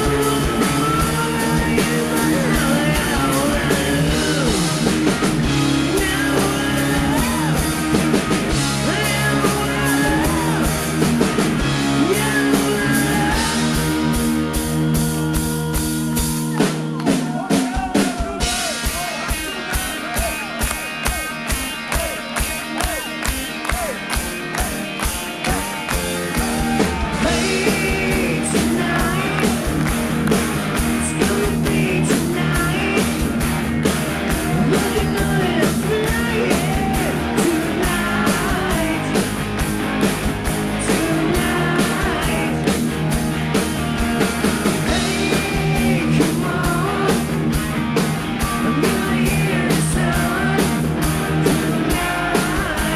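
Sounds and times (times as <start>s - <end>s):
person singing: 0.0s - 4.9s, 5.6s - 7.9s, 8.6s - 11.0s, 11.7s - 20.6s, 26.4s - 33.4s, 34.3s - 39.4s, 40.7s - 42.8s, 44.8s - 47.5s, 48.4s - 52.9s
rock band playing live: 0.0s - 52.9s.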